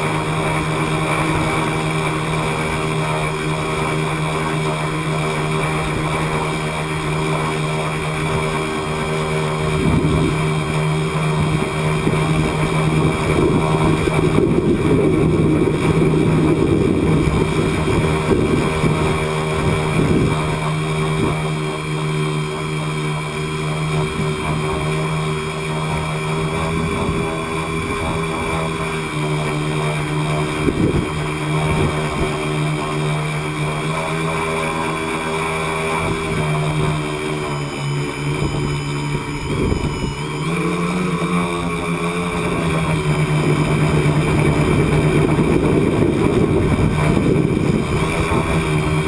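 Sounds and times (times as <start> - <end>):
drone motors and propellers: 0.0 - 49.0
wind buffeting microphone: 5.4 - 21.7, 26.3 - 33.0, 38.2 - 40.6, 41.4 - 49.0.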